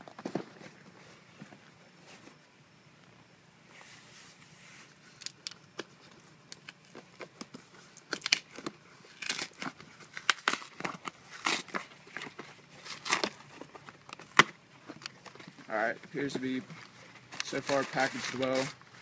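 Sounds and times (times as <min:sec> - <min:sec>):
packing tape ripping: 0:06.6 - 0:15.4
cardboard flaps tearing: 0:08.1 - 0:15.4.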